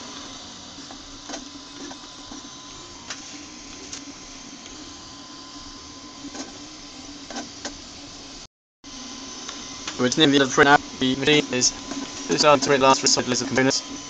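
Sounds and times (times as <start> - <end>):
printer stepper motors whirring: 0.0 - 14.0.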